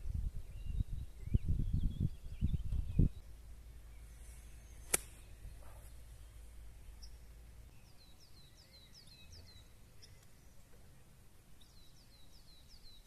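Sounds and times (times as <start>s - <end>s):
bird chirping: 0.1s - 13.0s
golf club striking ball: 4.9s - 5.2s.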